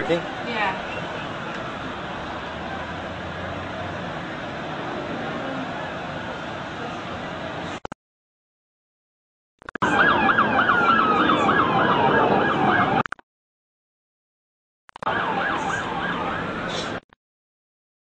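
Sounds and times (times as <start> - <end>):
fast yelping siren: 9.8 - 13.0, 15.1 - 16.7
slow falling siren wail: 9.8 - 13.0, 15.0 - 16.7.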